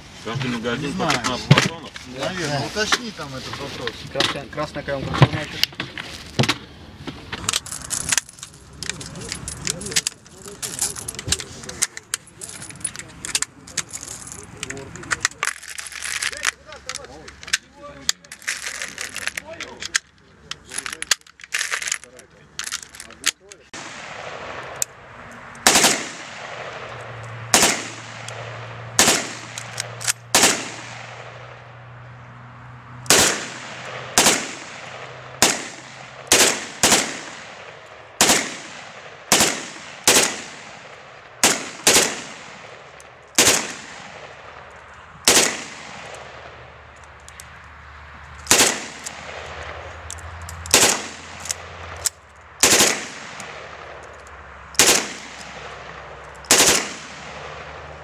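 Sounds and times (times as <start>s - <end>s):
rifle shots with echo: 23.7s - 24.8s, 25.6s - 31.6s, 33.1s - 46.8s, 48.4s - 49.9s, 50.7s - 52.0s, 52.6s - 54.0s, 54.8s - 58.0s.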